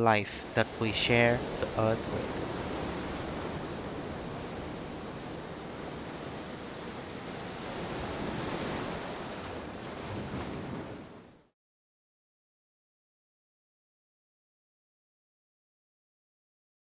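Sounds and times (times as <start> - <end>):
ocean waves washing on beach: 0.0 - 11.5.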